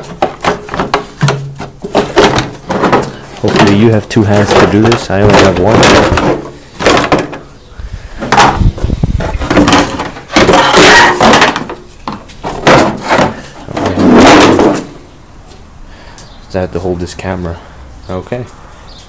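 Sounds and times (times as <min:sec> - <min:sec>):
plastic panel knocking and clattering: 0:00.0 - 0:07.5, 0:08.2 - 0:15.0.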